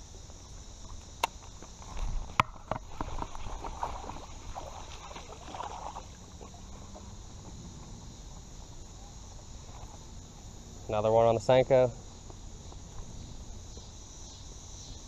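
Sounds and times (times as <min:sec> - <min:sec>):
insects humming: 0:00.0 - 0:15.0
fish splashing in water: 0:02.9 - 0:06.7.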